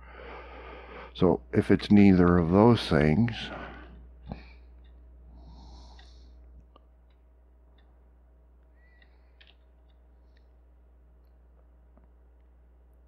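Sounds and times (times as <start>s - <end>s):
soft breath: 0.0s - 1.2s, 5.3s - 6.5s
low hum: 0.0s - 13.0s.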